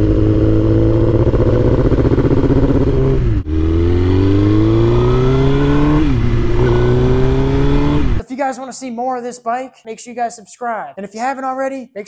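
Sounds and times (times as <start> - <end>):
motorcycle engine accelerating: 0.0 - 8.2.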